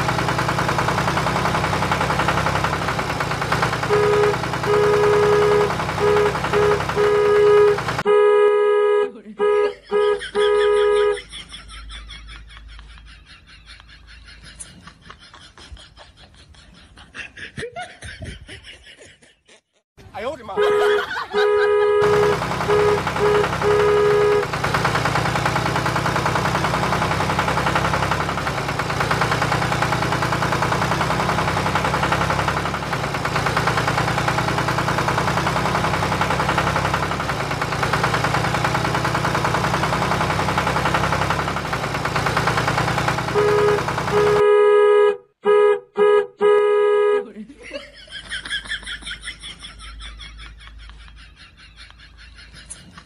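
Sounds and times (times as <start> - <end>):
truck engine running: 0.0 - 13.1, 20.6 - 47.2
truck horn honking: 1.0 - 11.3, 20.5 - 47.3.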